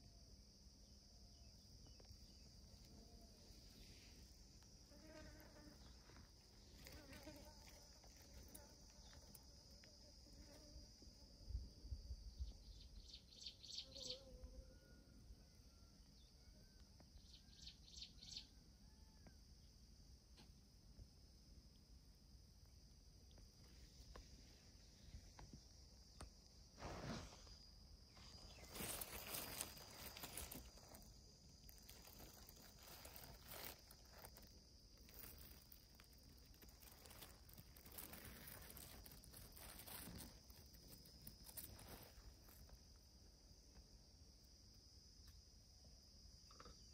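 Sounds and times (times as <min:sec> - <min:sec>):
high insect trill: 0:00.0 - 0:20.1, 0:20.7 - 0:46.9
rustling of grass and dry leaves: 0:02.0 - 0:10.3, 0:23.5 - 0:43.2.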